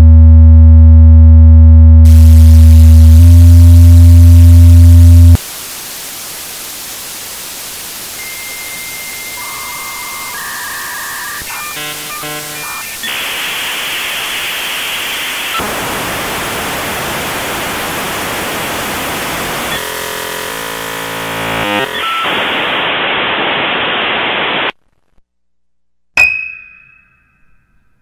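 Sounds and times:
buzzing tones: 0.0 - 5.4, 8.8 - 13.3, 19.5 - 22.6
static hiss: 2.1 - 24.8
sharp ringing ping: 26.2 - 27.6.

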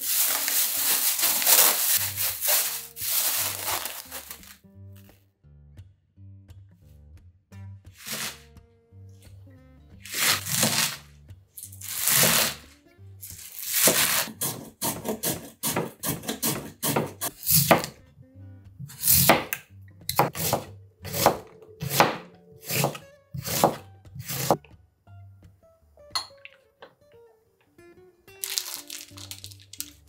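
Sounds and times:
hand slicer scraping strokes: 0.0 - 4.6, 8.0 - 8.5, 10.0 - 18.0, 20.1 - 24.6
knife cutting on plastic board: 8.0 - 8.4, 10.0 - 11.0, 11.8 - 12.6, 13.3 - 18.0, 18.8 - 24.6.

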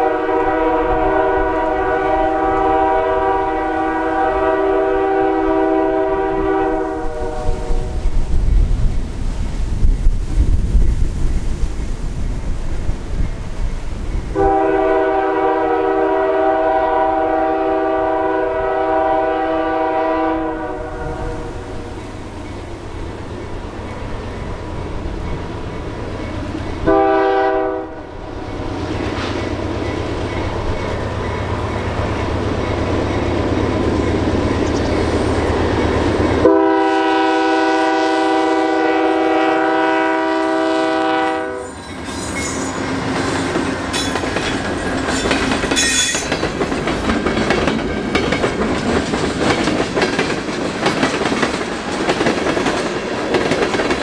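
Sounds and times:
locomotive air horn blasts: 0.0 - 8.0, 14.4 - 22.0, 26.8 - 28.1, 36.4 - 41.8
train wheels clacking over rail joints: 41.8 - 54.0.

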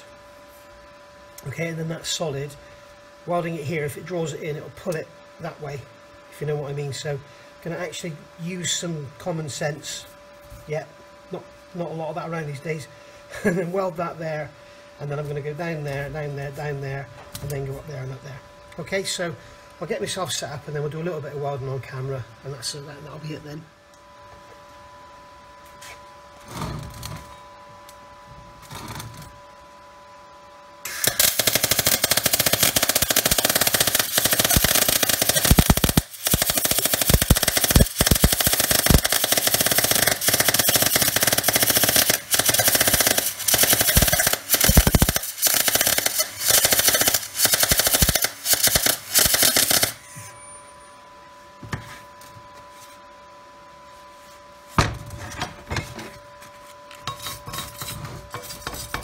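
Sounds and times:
welding arc crackling: 30.9 - 50.0.

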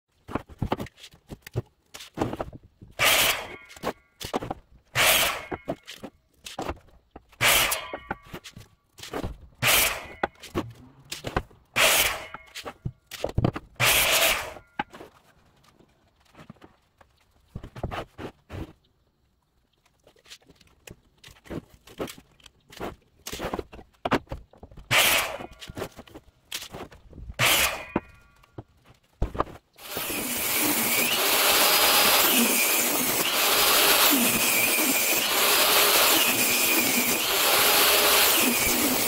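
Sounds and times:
boards knocking and scraping: 0.1 - 18.8, 20.0 - 30.1
miter saw cutting wood: 3.0 - 3.8, 5.0 - 5.7, 7.4 - 7.9, 9.6 - 10.3, 11.8 - 12.6, 13.8 - 14.6, 24.9 - 25.6, 27.4 - 28.0, 29.8 - 39.0.

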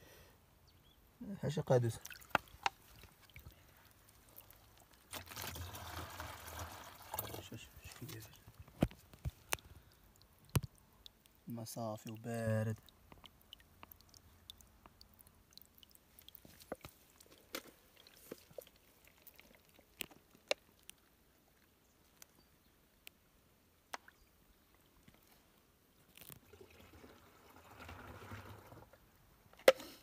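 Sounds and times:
soft rushing water: 1.6 - 22.2, 24.0 - 29.1
water dripping and trickling: 1.9 - 22.3, 26.1 - 28.9.

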